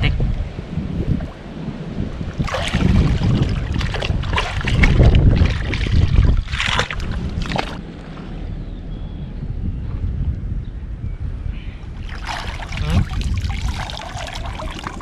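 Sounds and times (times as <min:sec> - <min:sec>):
wind rumbling on microphone: 0:00.0 - 0:15.0
muddy water splashing: 0:02.3 - 0:07.8, 0:12.0 - 0:15.0.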